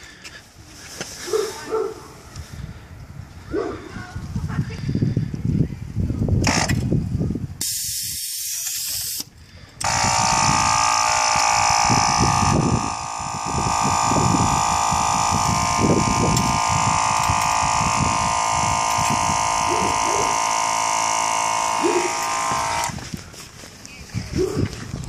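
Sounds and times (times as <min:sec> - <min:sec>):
air hissing from suspension: 0:07.6 - 0:10.9
air compressor whining: 0:08.9 - 0:23.2.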